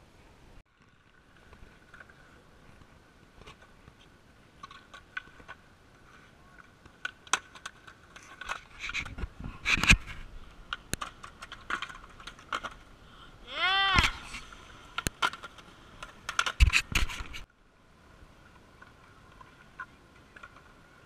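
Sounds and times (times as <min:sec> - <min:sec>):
skateboard wheels rolling on concrete: 0:00.0 - 0:21.0.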